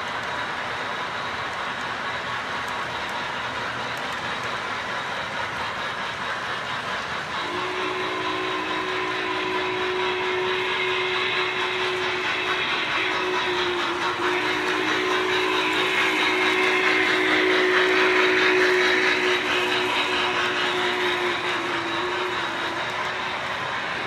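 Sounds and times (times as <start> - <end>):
model train rolling on track: 0.0 - 24.0
locomotive whistle: 7.3 - 24.0.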